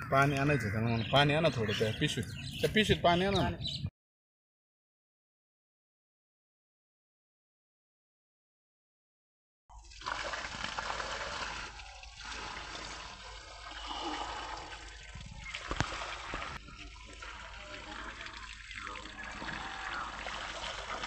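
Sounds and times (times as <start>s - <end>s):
water splashing onto fish: 9.8s - 21.0s.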